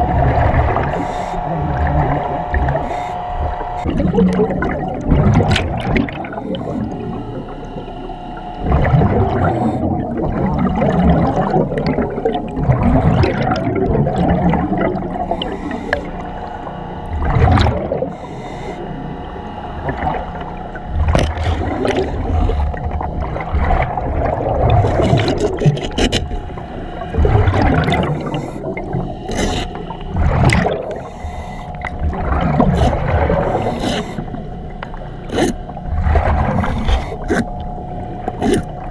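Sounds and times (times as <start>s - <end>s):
exhaust bubbles gurgling: 0.0s - 38.9s
diver breathing in helmet: 0.7s - 2.1s, 2.7s - 3.9s, 6.2s - 8.2s, 9.4s - 10.0s, 15.2s - 16.7s, 18.0s - 19.5s, 28.1s - 30.0s, 30.8s - 32.0s, 32.8s - 34.5s, 36.4s - 37.7s.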